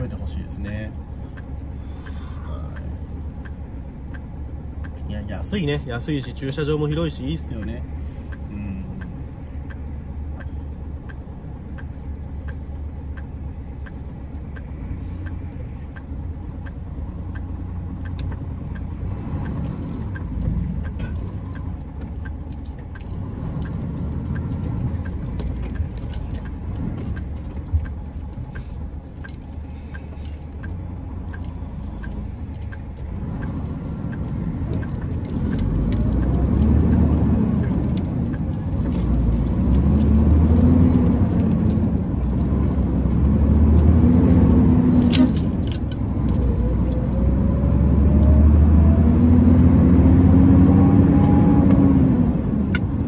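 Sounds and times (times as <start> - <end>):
faint regular ticking: 0.2 - 48.4.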